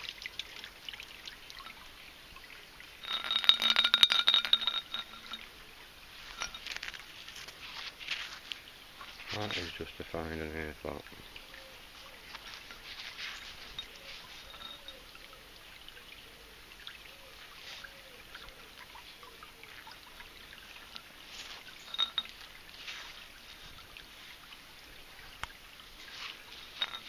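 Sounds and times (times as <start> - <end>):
stream trickling over rocks: 0.0 - 27.0
glass bottle clinking: 3.0 - 7.6, 11.6 - 15.4, 20.7 - 23.8, 26.1 - 27.0.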